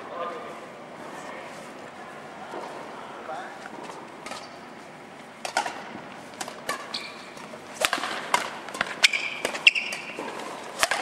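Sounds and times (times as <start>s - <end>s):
shoes squeaking on court: 3.6s - 4.9s, 6.5s - 7.7s, 8.8s - 10.7s
rackets hitting shuttlecock: 3.7s - 4.6s, 5.4s - 11.0s.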